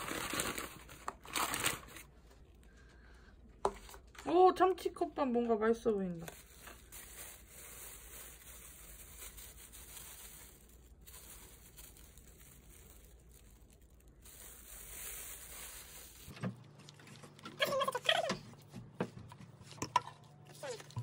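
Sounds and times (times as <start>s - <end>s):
plastic bag crinkling: 0.0s - 2.8s, 6.2s - 17.4s.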